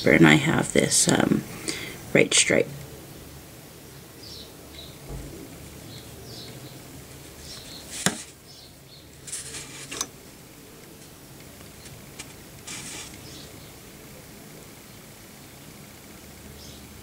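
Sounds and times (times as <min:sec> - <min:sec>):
low steady hum: 0:00.0 - 0:17.0
brief rustling: 0:11.8 - 0:13.3.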